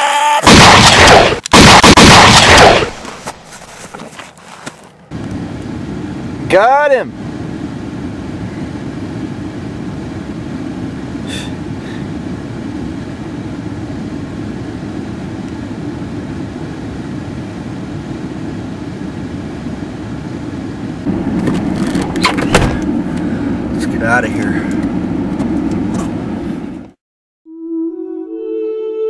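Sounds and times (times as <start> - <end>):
motor vehicle running: 21.0 - 27.0.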